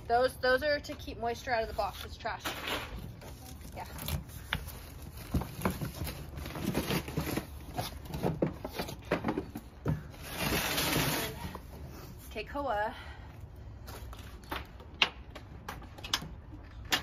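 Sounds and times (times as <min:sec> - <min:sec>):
cardboard packaging handled: 0:03.0 - 0:11.7
rasping cardboard scrape: 0:10.2 - 0:11.5.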